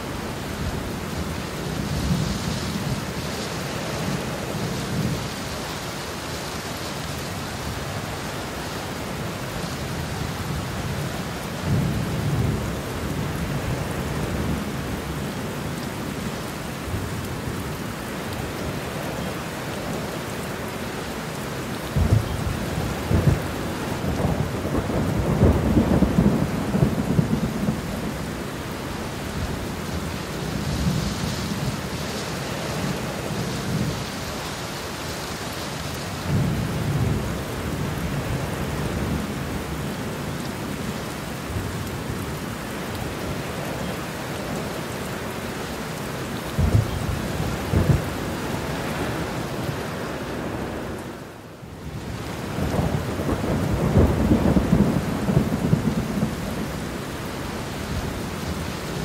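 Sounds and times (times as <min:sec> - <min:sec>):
steady rain: 0:00.0 - 0:59.0
thunder rumbling: 0:22.0 - 0:28.4, 0:46.4 - 0:49.9, 0:52.5 - 0:56.7.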